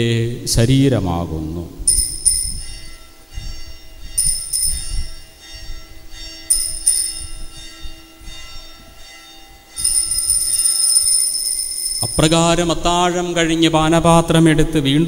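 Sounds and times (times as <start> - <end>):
small bells ringing: 1.9 - 12.7.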